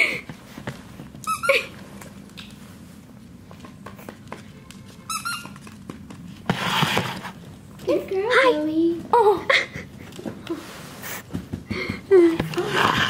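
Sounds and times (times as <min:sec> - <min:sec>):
high wavering toy squeak: 0:01.2 - 0:01.7, 0:05.1 - 0:05.6.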